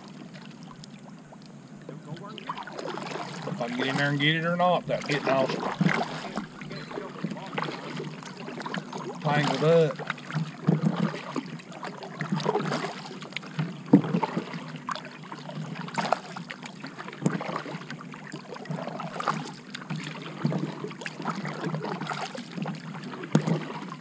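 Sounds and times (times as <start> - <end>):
paddle splashing in water: 2.0 - 24.0
paddle knocks: 4.9 - 11.2.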